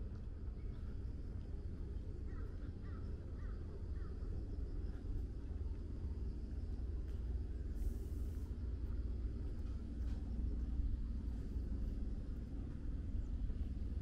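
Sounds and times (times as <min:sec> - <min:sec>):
low outdoor rumble: 0:00.0 - 0:14.0.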